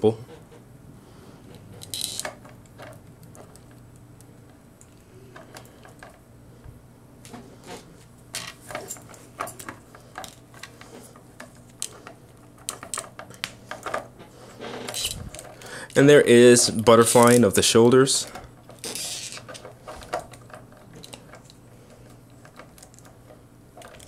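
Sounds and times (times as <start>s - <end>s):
plastic toy parts clicking: 1.8s - 3.8s, 11.4s - 14.0s, 18.7s - 21.6s, 23.8s - 24.0s.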